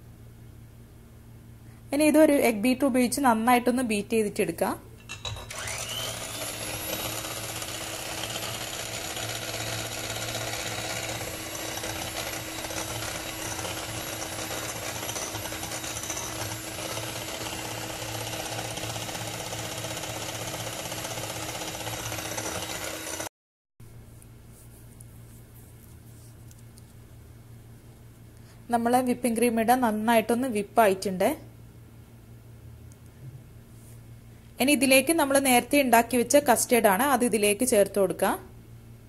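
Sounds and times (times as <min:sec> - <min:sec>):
electric hand mixer running: 0:05.3 - 0:23.3.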